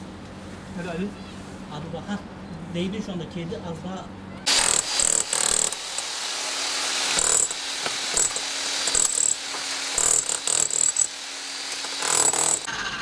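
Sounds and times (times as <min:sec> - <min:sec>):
rotary hammer chiselling stone: 0:04.5 - 0:06.1, 0:07.1 - 0:12.7.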